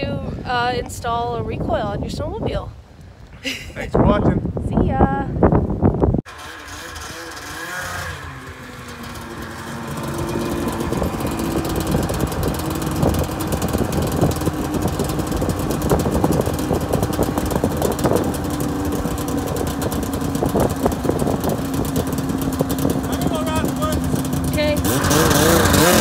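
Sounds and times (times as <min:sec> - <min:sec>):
sharp clicks and rattles: 0:06.3 - 0:26.0
snowmobile engine droning: 0:06.3 - 0:26.0.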